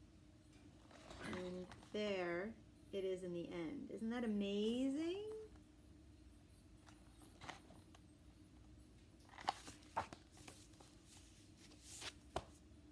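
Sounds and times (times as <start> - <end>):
faint room hum: 0.0 - 12.9
book rustling: 0.8 - 1.9, 6.8 - 7.9, 9.2 - 12.6.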